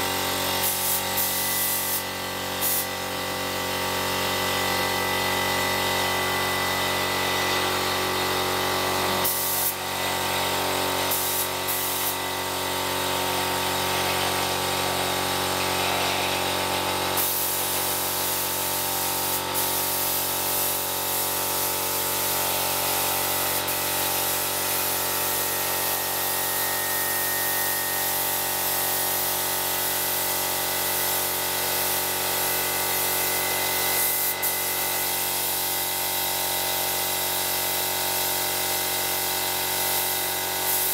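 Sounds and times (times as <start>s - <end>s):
air compressor running: 0.0s - 40.9s
spray gun hissing: 0.6s - 2.9s, 9.2s - 9.8s, 11.1s - 12.2s, 15.5s - 31.0s, 31.8s - 35.6s, 40.0s - 40.9s.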